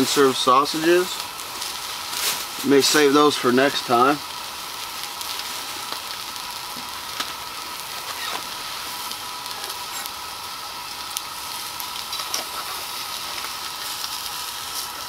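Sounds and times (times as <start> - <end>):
sausage sizzling in a pan: 0.0 - 15.0.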